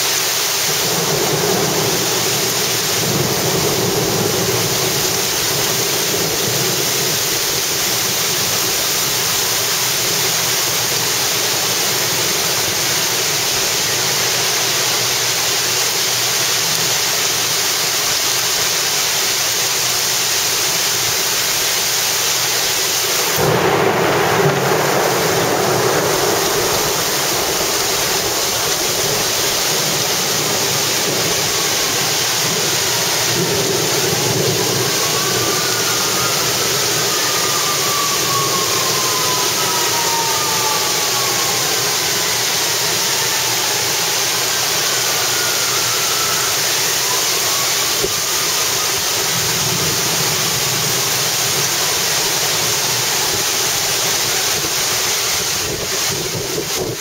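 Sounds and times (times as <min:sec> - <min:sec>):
heavy wind-driven rain: 0:00.0 - 0:57.0
thunder rumble: 0:00.7 - 0:13.6, 0:23.2 - 0:57.0
strong wind: 0:23.2 - 0:57.0.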